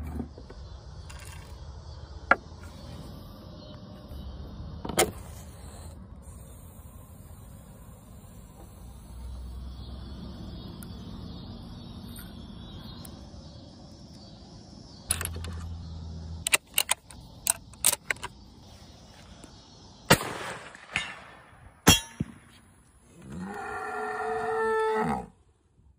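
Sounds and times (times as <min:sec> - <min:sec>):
metallic clicks of rifle loading: 0:16.4 - 0:18.4
loud sharp gunshots: 0:20.1 - 0:22.4
cow mooing: 0:23.2 - 0:25.3.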